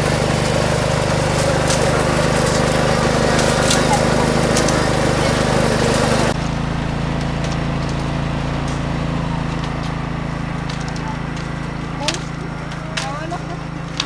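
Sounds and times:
crowd noise: 0:00.0 - 0:14.0
small engine humming: 0:00.0 - 0:14.0.

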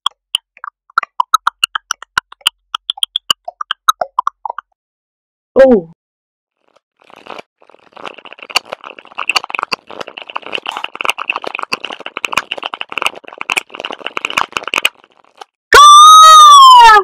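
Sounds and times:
dense crackling and clicking: 0:07.1 - 0:15.6
harsh pitched cry: 0:15.8 - 0:17.0.

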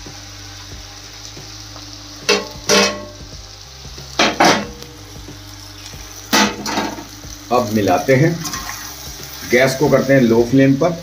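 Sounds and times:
vegetables sizzling in a pan: 0:00.0 - 0:11.0
steel spatula scraping a pan: 0:08.4 - 0:09.6.

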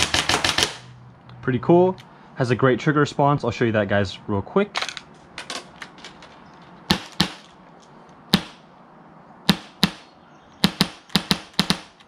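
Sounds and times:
air gun shots cracking: 0:06.9 - 0:07.5, 0:08.3 - 0:08.6, 0:09.5 - 0:12.0.

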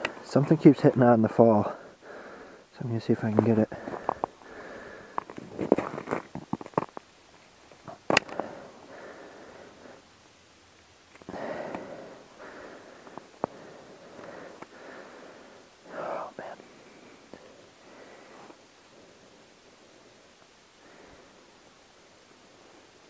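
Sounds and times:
soft breaths: 0:00.0 - 0:06.8, 0:07.7 - 0:10.4, 0:11.1 - 0:23.0
rustling: 0:03.1 - 0:10.0.

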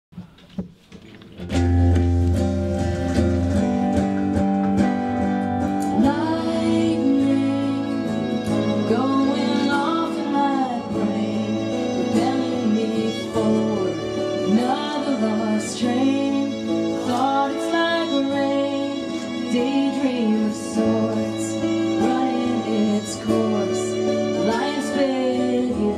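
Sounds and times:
acoustic guitars strumming: 0:00.3 - 0:25.9
violin: 0:01.9 - 0:25.9
woman singing: 0:05.8 - 0:25.9.

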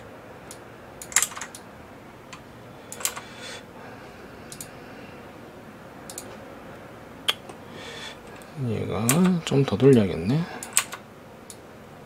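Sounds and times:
faint room hiss: 0:00.0 - 0:12.0
keyboard and mouse clicks: 0:01.0 - 0:01.6, 0:02.3 - 0:03.3, 0:06.1 - 0:06.4, 0:10.6 - 0:11.6.

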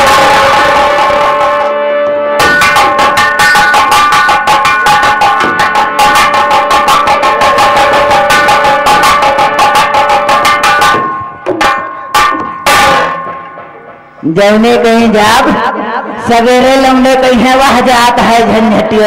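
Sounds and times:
sustained instrument notes: 0:00.0 - 0:14.2
fast driving drum strokes: 0:00.0 - 0:19.0.

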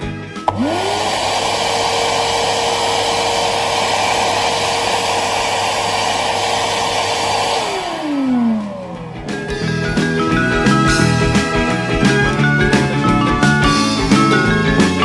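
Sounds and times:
rushing air: 0:00.4 - 0:09.6
vacuum motor whining: 0:00.4 - 0:12.4.

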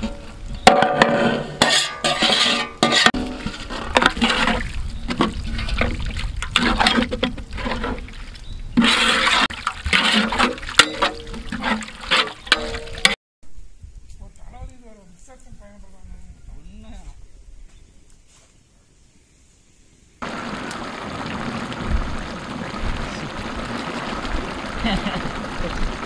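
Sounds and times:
metal spatula scraping a pot: 0:01.0 - 0:05.8, 0:06.5 - 0:08.1, 0:08.7 - 0:13.2
liquid sloshing in a pot: 0:08.8 - 0:13.1.

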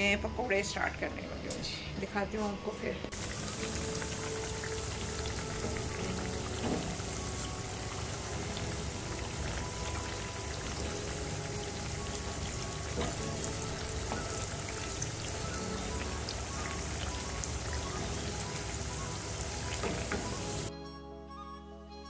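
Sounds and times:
food sizzling in hot oil: 0:03.1 - 0:20.7.

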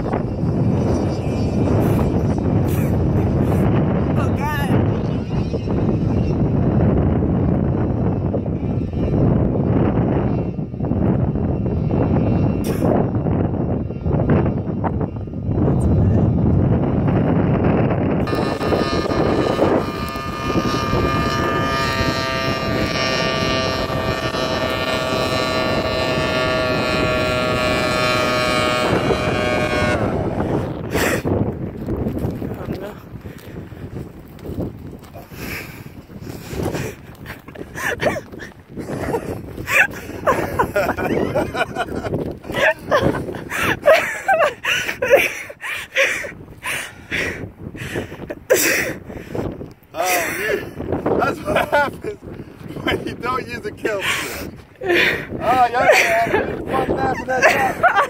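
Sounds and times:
wind buffeting microphone: 0:00.0 - 0:58.0
two-stroke engine running high: 0:18.2 - 0:31.3
man laughing: 0:36.8 - 0:47.4, 0:48.0 - 0:49.0, 0:50.0 - 0:58.0.

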